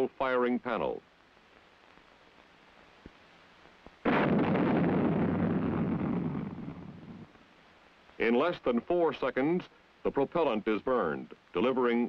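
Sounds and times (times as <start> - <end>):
rocket launch roar: 4.0 - 7.3.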